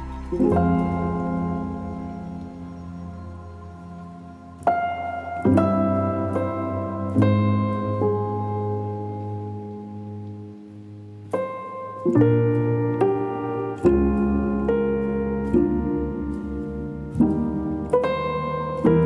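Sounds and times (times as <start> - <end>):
slow solo piano music: 0.0 - 19.0.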